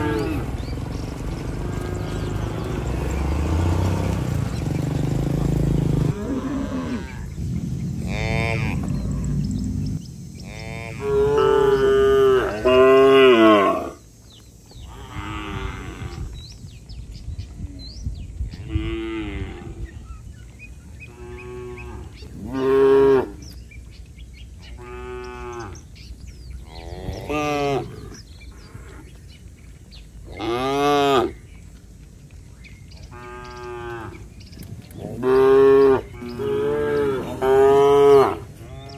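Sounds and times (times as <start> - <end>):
cattle mooing: 0.0 - 0.7, 1.4 - 4.5, 5.3 - 7.3, 8.0 - 9.4, 10.4 - 14.0, 35.0 - 38.9.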